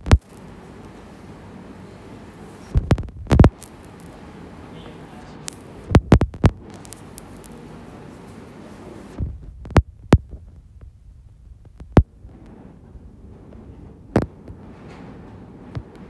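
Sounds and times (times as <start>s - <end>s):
sharp thumps: 0.0s - 0.3s, 2.7s - 4.1s, 5.4s - 7.5s, 9.1s - 12.5s
low steady hum: 0.0s - 16.0s.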